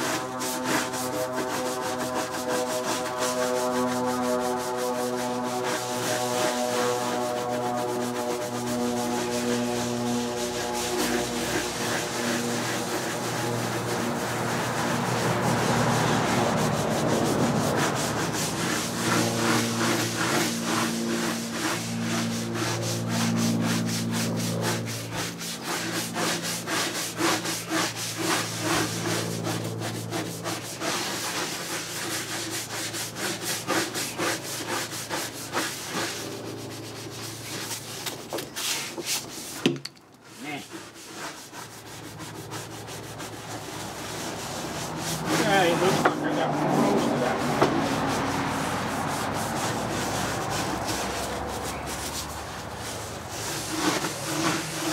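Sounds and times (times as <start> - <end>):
brush scrubbing: 0.0 - 54.9
low steady hum: 0.1 - 20.0.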